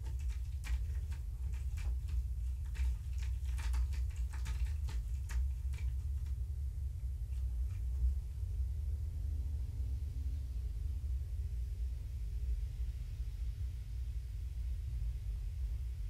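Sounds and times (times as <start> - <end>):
kittens clicking on cat tree: 0.0 - 6.4
low room hum: 0.0 - 16.0.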